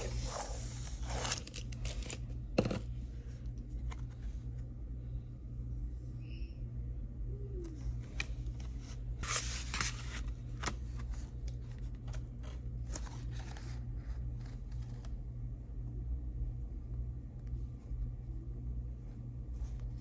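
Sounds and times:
low steady hum: 0.0s - 20.0s
plastic sheet and cardstock handled: 7.8s - 15.2s.

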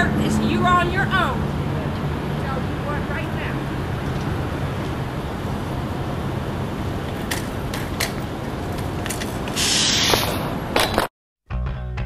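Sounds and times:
traffic rumble: 0.0s - 11.1s
bicycle passing with hissing rush: 1.3s - 10.7s.

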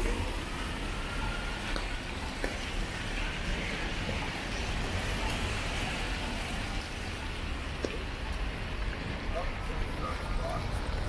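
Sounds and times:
low traffic rumble: 0.0s - 11.0s
tyres on wet road: 0.0s - 11.0s.

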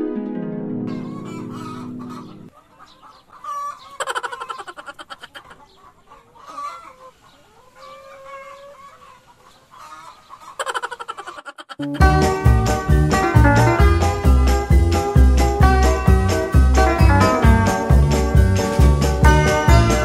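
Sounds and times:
held music chord: 0.0s - 2.5s, 11.8s - 20.0s
hens clucking: 0.9s - 14.3s.

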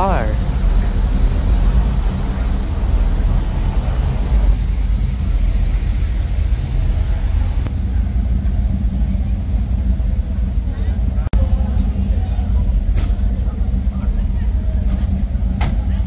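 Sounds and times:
car engine idling: 0.0s - 16.0s
street noise hiss: 0.0s - 16.0s.

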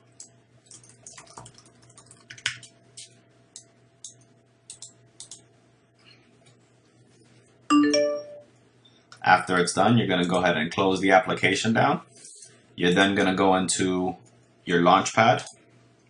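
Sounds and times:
computer keyboard key clicks: 0.2s - 5.4s.

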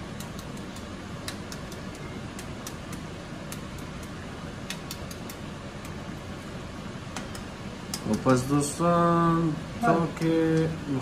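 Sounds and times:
eggshells clicking together: 0.0s - 6.0s.

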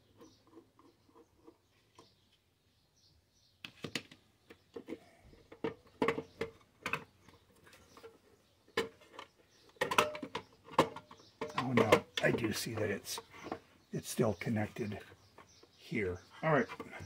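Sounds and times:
sheet metal clicks and rattles: 8.8s - 12.9s.

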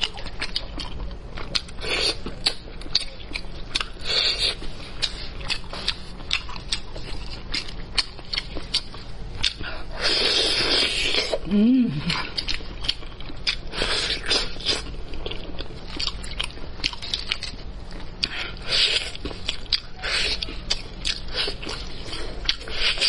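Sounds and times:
chewing meat off bone: 0.0s - 23.0s
person humming: 11.4s - 12.3s.

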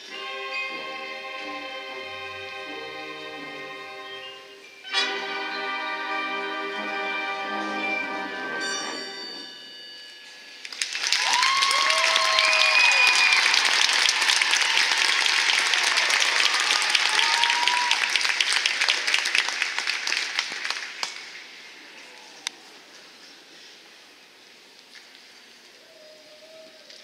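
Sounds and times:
audience applauding and cheering: 10.6s - 22.4s
whoops from audience: 11.1s - 18.1s, 25.8s - 27.0s.

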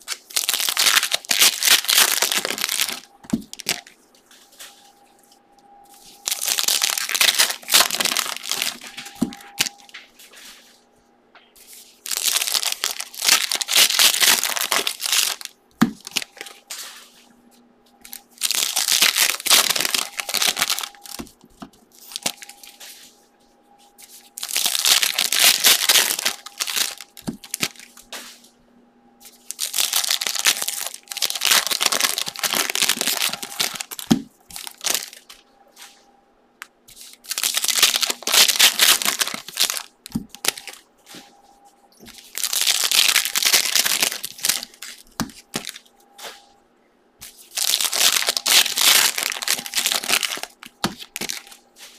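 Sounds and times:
foil wrappers tearing and crinkling: 0.0s - 4.0s, 6.0s - 10.6s, 11.6s - 16.7s, 18.0s - 21.3s, 22.0s - 22.9s, 24.1s - 28.0s, 29.3s - 35.4s, 37.0s - 40.8s, 42.0s - 45.8s, 47.2s - 51.9s.

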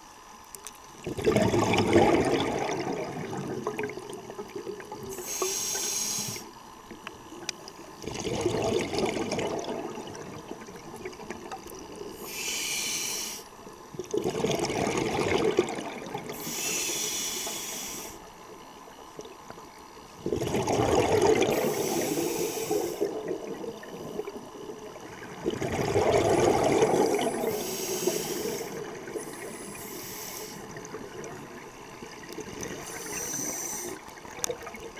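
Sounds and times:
exhaled bubbles: 1.0s - 5.6s, 8.0s - 12.4s, 13.9s - 16.7s, 20.1s - 34.9s
hissing regulator inhales: 5.1s - 6.5s, 12.2s - 13.6s, 16.3s - 18.3s, 21.5s - 23.2s, 27.1s - 30.8s, 32.8s - 34.1s.

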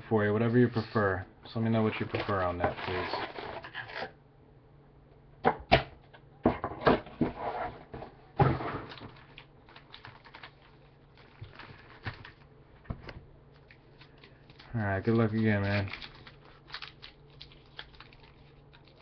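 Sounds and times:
wrappers rustling: 9.0s - 12.4s, 13.6s - 19.0s.

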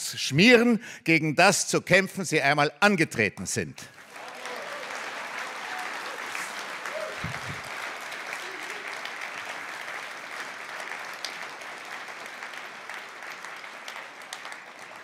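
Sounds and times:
audience applauding: 3.9s - 15.0s.

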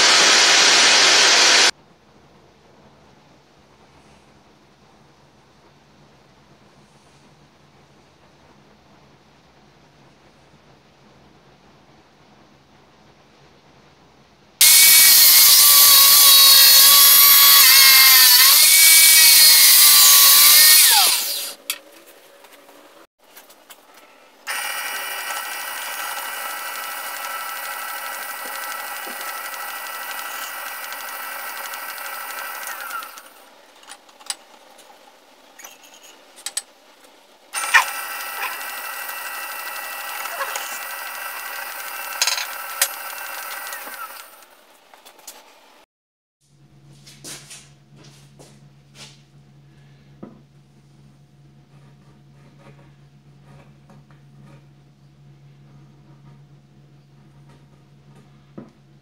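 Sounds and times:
drill press drilling steel: 0.0s - 1.7s, 14.6s - 21.6s, 24.5s - 33.4s, 37.6s - 44.5s.

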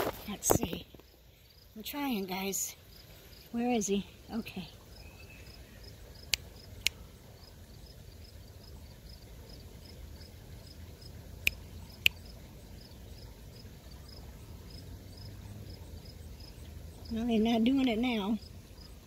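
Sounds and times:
faint insects chirping: 0.0s - 19.0s
finger snaps: 6.3s - 7.0s, 11.4s - 12.2s.

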